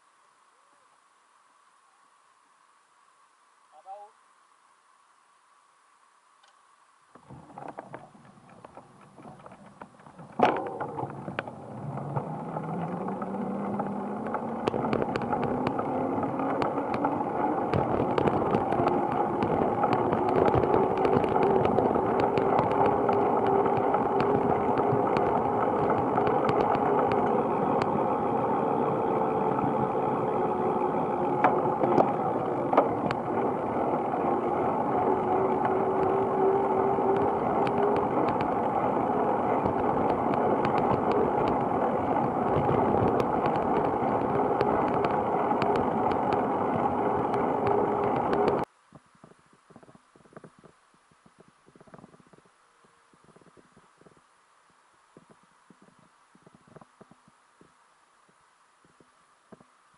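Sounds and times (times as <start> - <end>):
rising hum: 7.1 - 48.7
bicycle tyre noise: 7.1 - 52.5.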